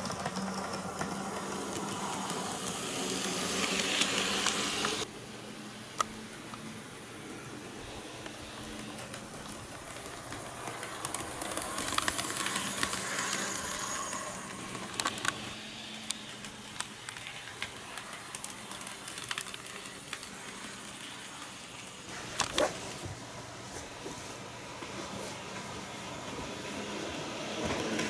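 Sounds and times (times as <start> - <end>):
model train motor humming: 0.0 - 5.1, 8.0 - 22.1
wheels clicking over rail joints: 0.0 - 5.1, 8.6 - 21.0.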